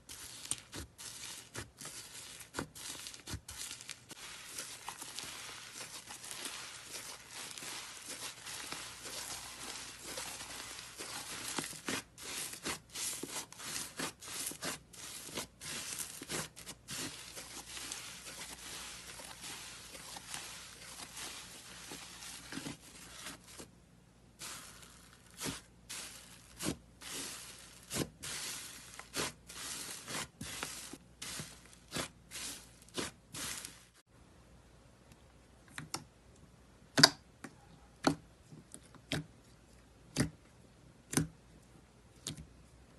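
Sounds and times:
crackly slime squishes: 0.0 - 23.7, 24.4 - 34.0
slime crackling and tearing: 0.1 - 23.6, 24.4 - 33.7.

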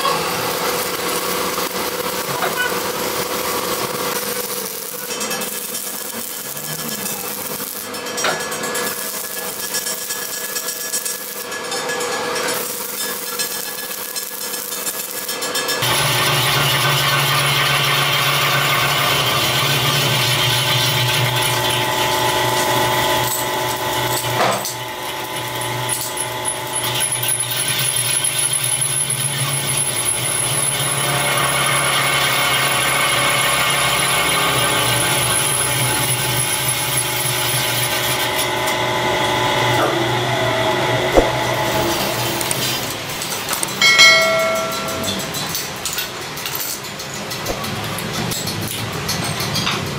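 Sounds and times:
brief knock: 41.2 - 41.4
ringing machining whine: 43.8 - 45.6.

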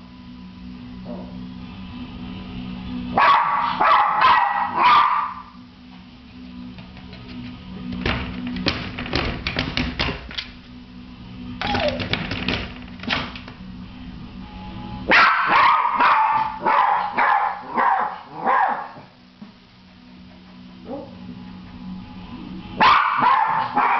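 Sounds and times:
small dog barking and yelping: 3.2 - 5.5, 15.1 - 19.0, 22.8 - 23.9.

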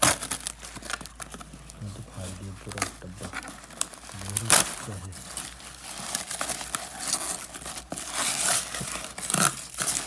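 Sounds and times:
paper filler rustling and crinkling: 0.0 - 10.0.

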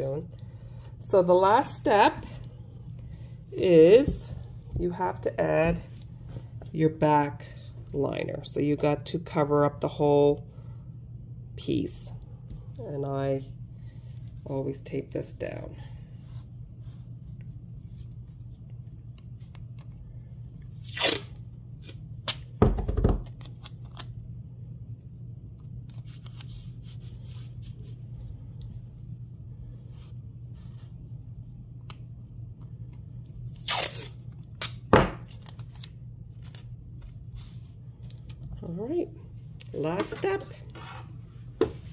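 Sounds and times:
steady low hum: 0.0 - 41.9
tape ripping off a roll: 20.7 - 22.5, 33.5 - 36.6.

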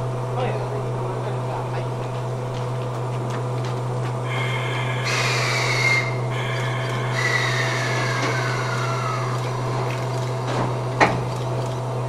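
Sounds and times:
steady low hum: 0.0 - 12.0
air brake hissing and whistling: 4.3 - 9.8.

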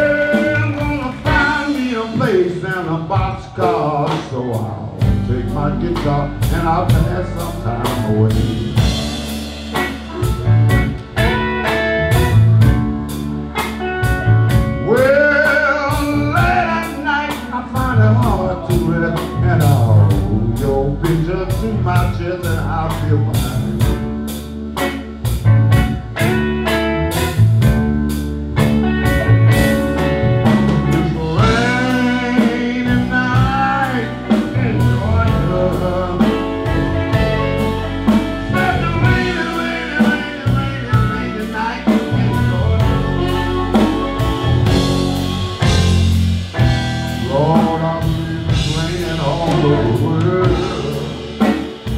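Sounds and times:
drum kit beat: 0.0 - 51.9
electric bass: 0.0 - 51.9
electric guitar: 0.0 - 51.9
amplified harmonica solo: 8.8 - 17.2, 28.6 - 47.5.

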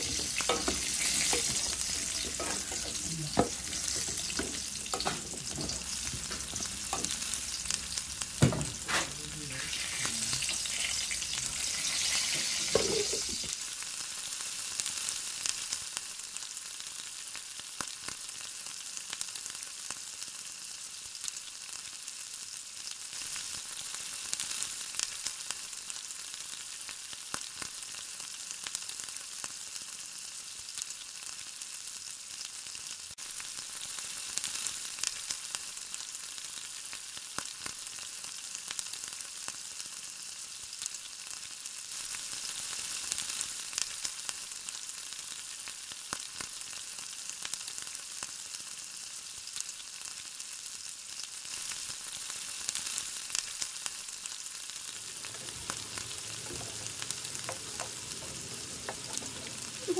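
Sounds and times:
spatula scraping and knocking pan: 0.0 - 9.2, 9.9 - 13.5, 55.1 - 59.8
faint popping in a covered pan: 0.0 - 9.4, 10.4 - 13.7, 54.9 - 59.9
food sizzling in a pan: 0.0 - 59.9.

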